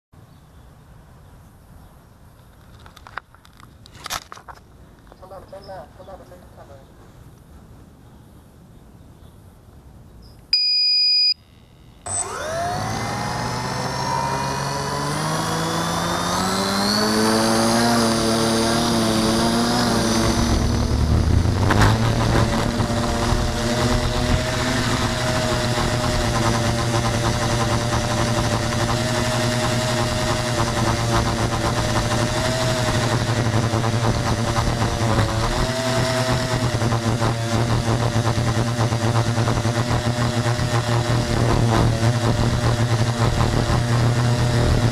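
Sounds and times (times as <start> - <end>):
short electronic beep: 10.5 - 12.2
drone motors whining: 10.6 - 44.9.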